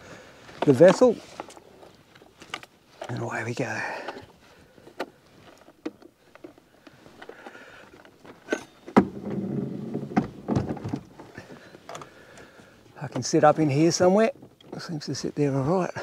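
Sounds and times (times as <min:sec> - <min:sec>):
wood scraping against canoe hull: 0:00.6 - 0:03.4, 0:06.9 - 0:14.6.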